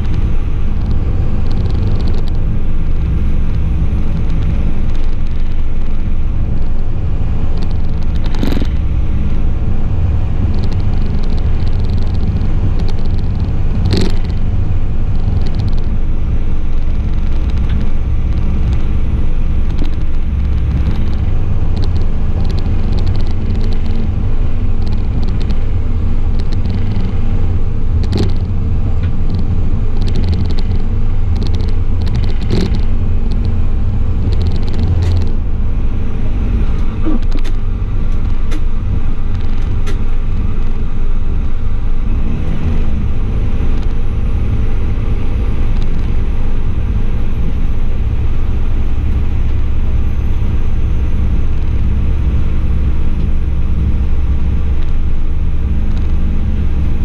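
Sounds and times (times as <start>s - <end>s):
railcar engine rumble: 0.0s - 57.0s
running gear clicks and knocks: 10.5s - 14.4s, 15.2s - 16.0s, 19.6s - 24.1s, 24.8s - 25.6s, 26.3s - 27.2s, 28.0s - 33.5s, 34.2s - 35.4s.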